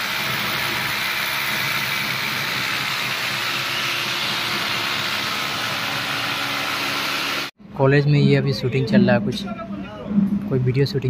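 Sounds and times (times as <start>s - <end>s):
construction site rushing noise: 0.0s - 7.8s.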